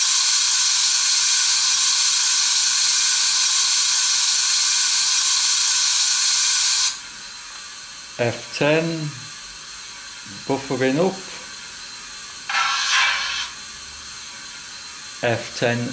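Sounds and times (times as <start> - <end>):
steam ejector hissing: 6.7 - 15.9.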